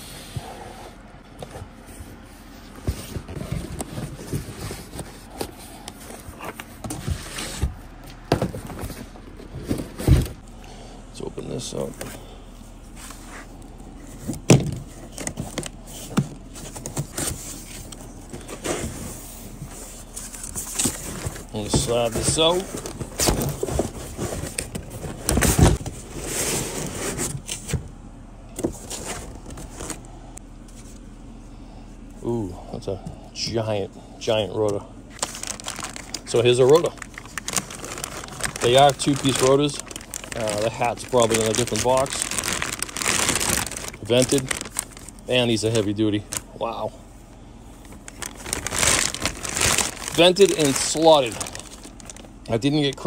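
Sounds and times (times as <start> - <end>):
cardboard rustling: 1.5 - 10.5, 12.9 - 27.8, 28.6 - 30.1, 35.2 - 46.6, 47.8 - 53.0
cardboard box scraping and rustling: 15.0 - 27.7.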